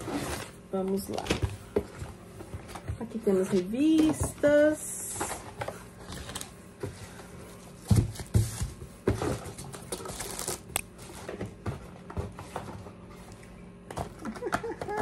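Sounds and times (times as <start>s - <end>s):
paper and packaging rustling: 2.4s - 11.6s.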